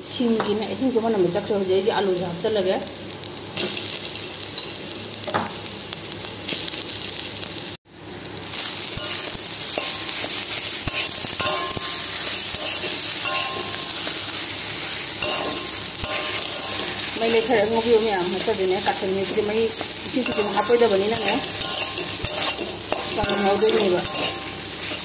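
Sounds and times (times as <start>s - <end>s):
food sizzling in oil: 0.0s - 25.0s
metal spatula scraping pan: 10.8s - 14.4s, 15.1s - 17.4s, 19.8s - 25.0s.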